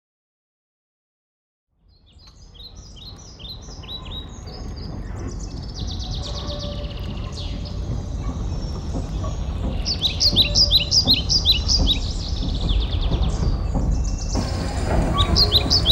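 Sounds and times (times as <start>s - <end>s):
small birds chirping: 1.9s - 15.9s
low rumble: 6.9s - 15.9s.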